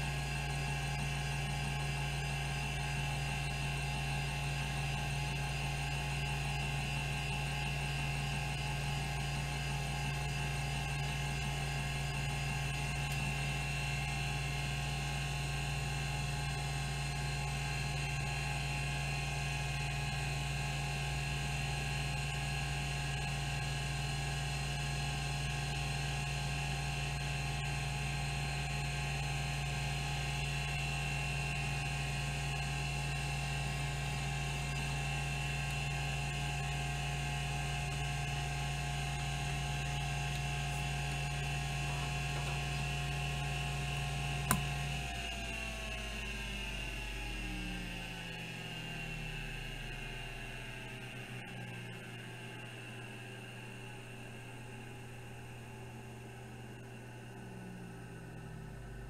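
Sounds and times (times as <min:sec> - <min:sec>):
hard drive spindle whine: 0:00.0 - 0:59.0
hard drive head actuator buzzing: 0:34.8 - 0:45.1
sharp click: 0:44.4 - 0:44.8.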